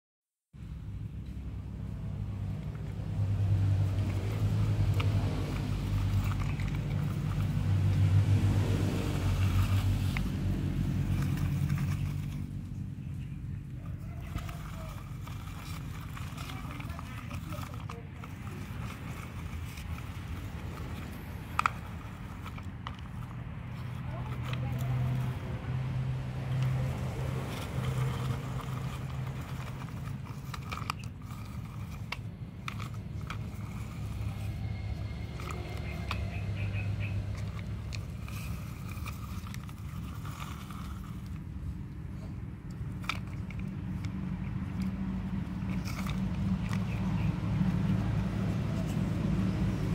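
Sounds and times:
engine humming: 0.5s - 49.9s
low steady rumble: 0.6s - 49.9s
plastic wheels crunching on dirt: 0.6s - 49.9s.

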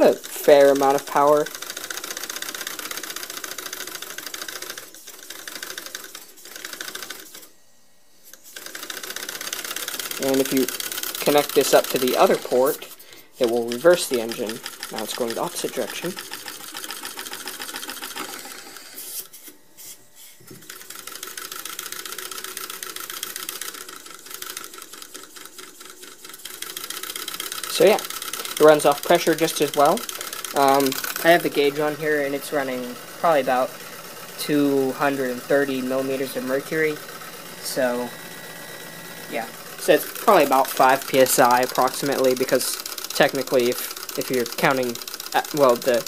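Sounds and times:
small steam engine ticking: 0.0s - 7.5s, 8.4s - 19.0s, 20.6s - 46.0s
small steam engine clattering: 39.7s - 46.0s.

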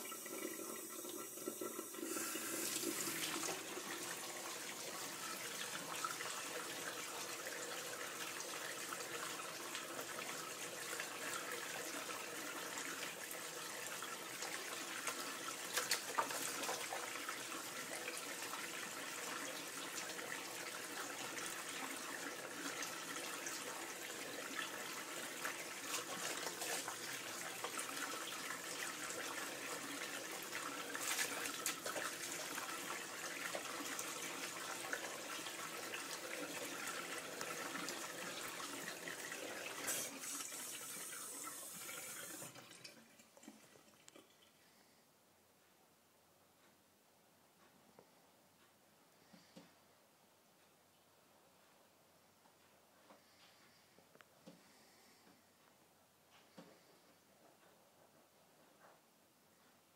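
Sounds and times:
tap water splashing into sink: 14.3s - 18.6s.

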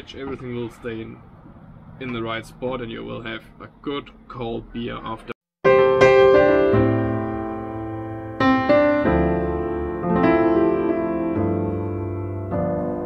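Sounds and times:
slow piano chords: 5.7s - 13.0s.

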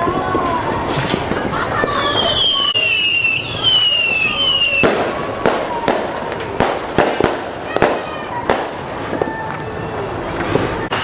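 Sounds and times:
firework bangs: 0.0s - 11.0s
falling firework whistles: 0.9s - 9.3s.

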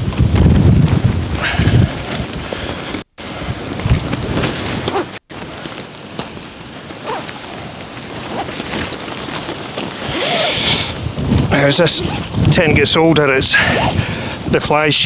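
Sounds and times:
nylon tent flapping: 0.0s - 14.7s
gusty wind buffeting microphone: 0.0s - 15.0s
faint rustles and clicks: 0.9s - 12.7s.

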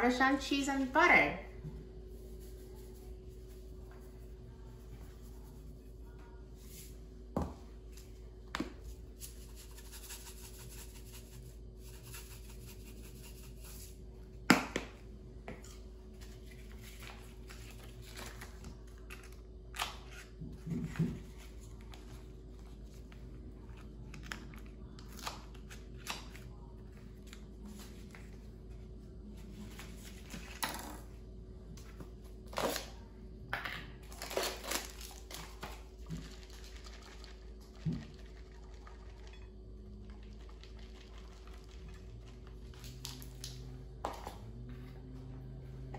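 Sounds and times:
faint steady hum: 0.0s - 45.9s.

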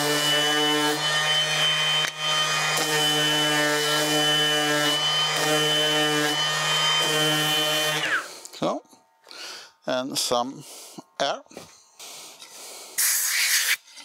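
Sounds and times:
orbital sander on wood: 0.0s - 8.4s.

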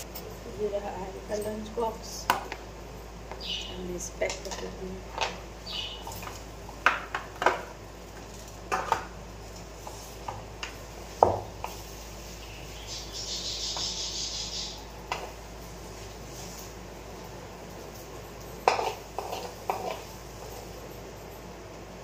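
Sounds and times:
rustling and scraping: 17.8s - 20.8s.

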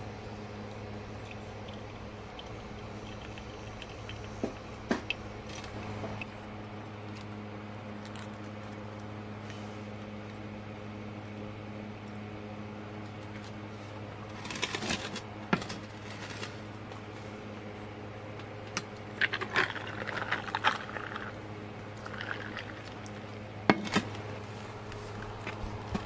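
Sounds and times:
low hum: 0.0s - 26.0s
tea pouring over ice: 1.2s - 5.8s, 19.2s - 23.3s
ice clinking and crackling: 14.3s - 16.6s, 19.1s - 24.1s.

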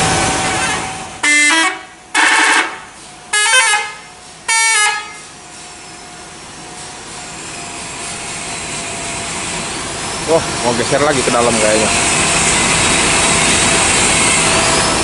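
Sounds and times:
musical air horn blasts: 0.6s - 5.2s.

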